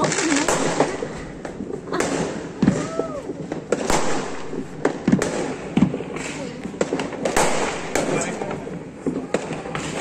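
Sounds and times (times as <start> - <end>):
fireworks bangs and pops: 0.0 - 10.0.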